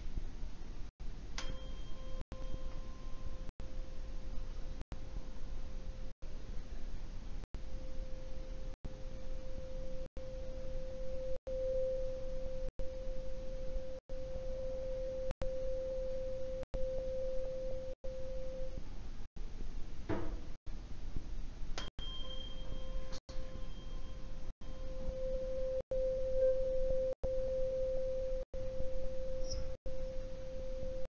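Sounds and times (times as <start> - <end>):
tuning fork struck: 1.4 - 5.8, 21.8 - 31.0
tuning fork ringing: 1.4 - 6.0, 7.8 - 18.8, 21.8 - 31.0.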